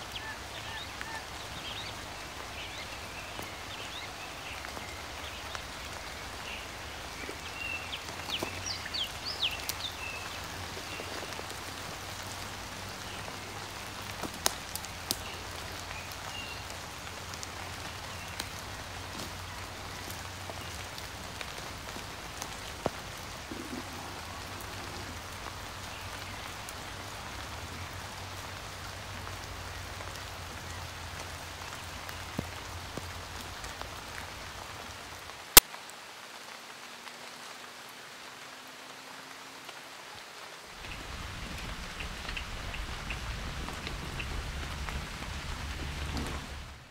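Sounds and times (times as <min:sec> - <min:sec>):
water drips: 0:00.0 - 0:35.8
rain patter: 0:00.0 - 0:46.9.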